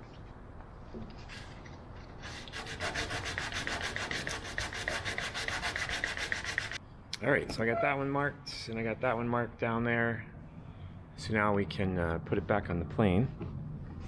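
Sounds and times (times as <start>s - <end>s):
rapid rubbing on wood: 2.3s - 6.8s.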